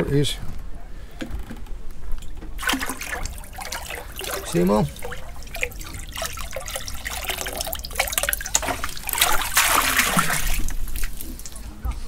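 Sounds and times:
water splashing in a bucket: 2.2 - 11.7
rush of water: 2.6 - 11.6.

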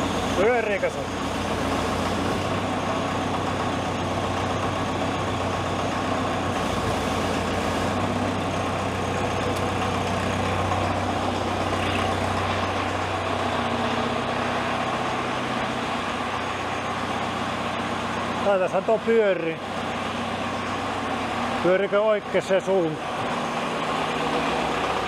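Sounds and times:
loader engine idling: 0.0 - 25.0
rotating brush sweeper: 6.5 - 8.5.

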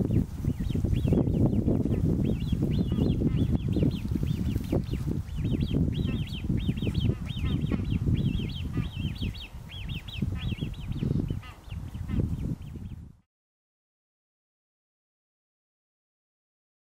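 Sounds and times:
bird piping begging calls: 0.0 - 13.0.

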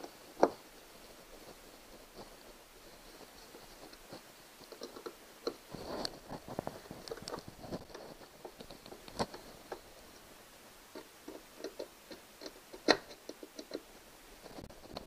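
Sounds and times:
screwdriver clicking on plastic: 11.0 - 13.9.

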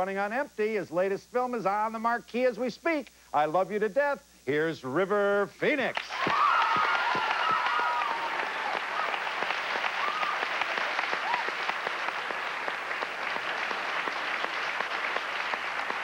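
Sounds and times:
audience applauding: 5.9 - 16.0
audience cheering and whooping: 6.1 - 16.0.

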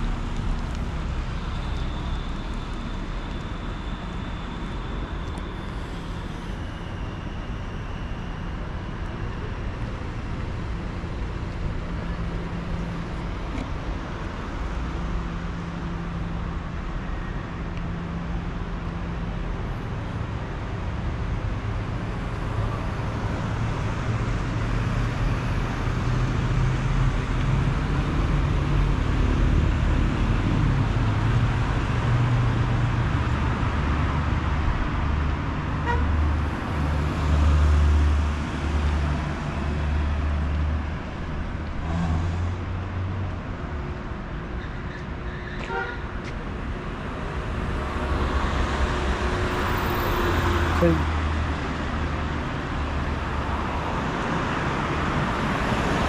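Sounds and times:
tyres on road: 0.0 - 56.0
cars driving past: 18.9 - 56.0.

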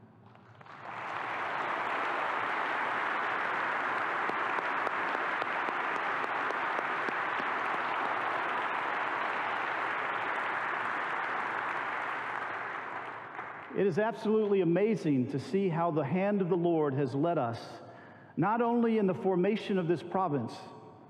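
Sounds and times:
crowd applauding: 0.3 - 13.9.

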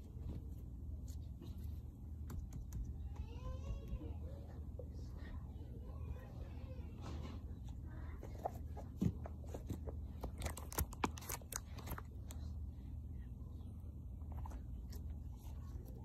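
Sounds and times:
stress ball crackling and squishing: 7.8 - 12.6.

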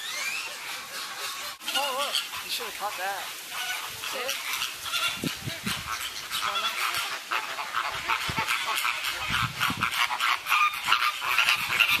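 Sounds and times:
flamingos honking: 0.0 - 12.0.

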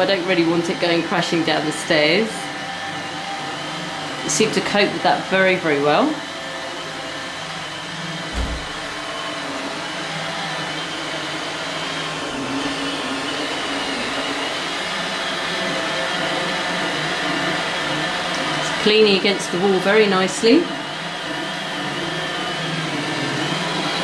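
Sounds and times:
low thump: 8.3 - 9.2.

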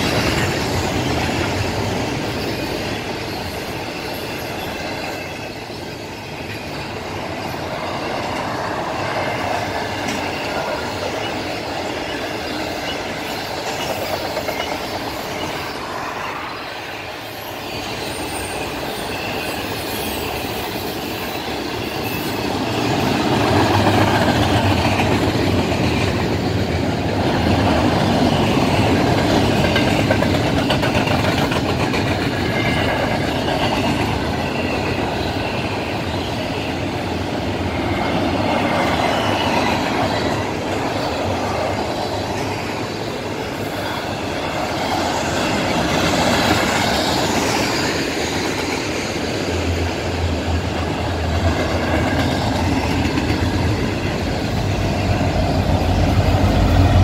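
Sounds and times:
high wheel squeal: 0.0 - 24.3, 32.1 - 49.5
diesel locomotive drone: 0.0 - 57.0
train wheels rumbling and rattling: 0.0 - 57.0.

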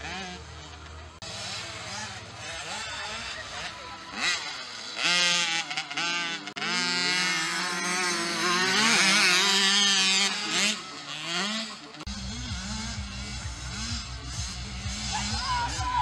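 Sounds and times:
motocross bikes revving: 0.0 - 16.0.

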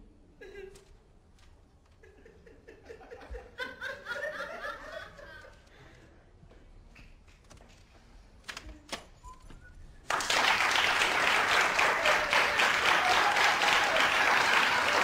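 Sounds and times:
studio audience applause: 10.1 - 15.0.

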